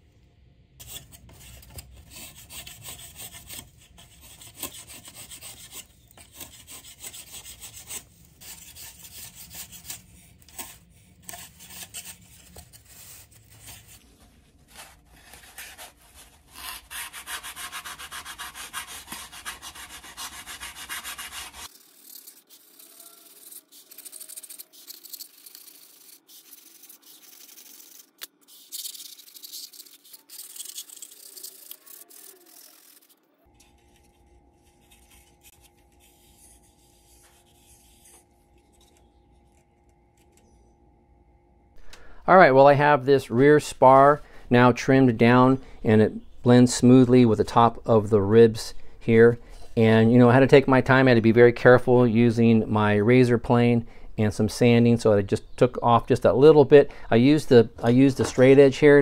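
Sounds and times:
razor plane shaving wood: 0:02.1 - 0:12.5, 0:15.3 - 0:28.1, 0:28.8 - 0:33.1
sanding block scraping wood: 0:02.1 - 0:14.0, 0:15.3 - 0:33.1.

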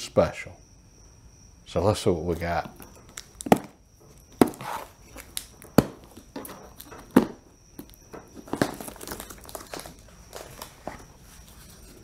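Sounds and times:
plastic wrap crinkling: 0:04.4 - 0:12.0.

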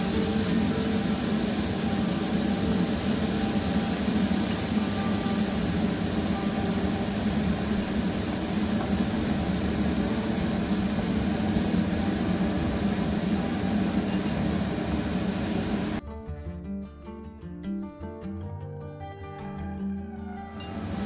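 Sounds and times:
food frying in pans: 0:00.0 - 0:16.0, 0:20.6 - 0:21.0.

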